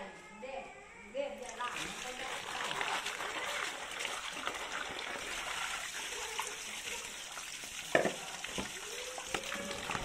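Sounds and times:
tap water splashing into bowl: 7.7 - 10.0.

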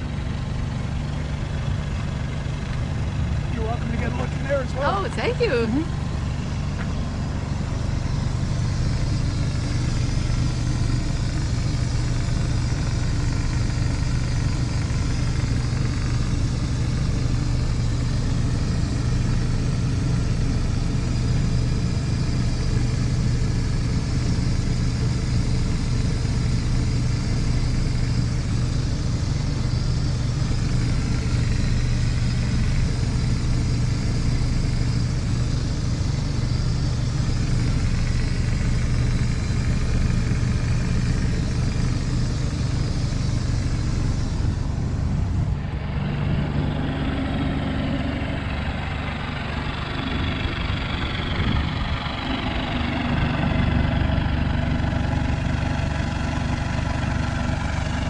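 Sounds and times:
motor humming: 0.0 - 58.0.

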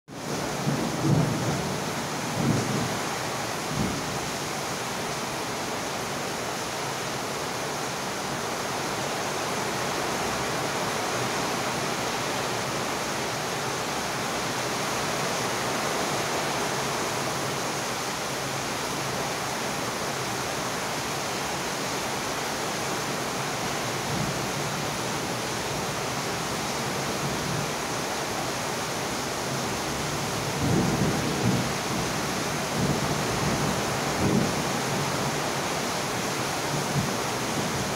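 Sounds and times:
steady rain falling: 0.1 - 37.9
thunder rumbles: 0.5 - 3.0, 32.7 - 34.7.

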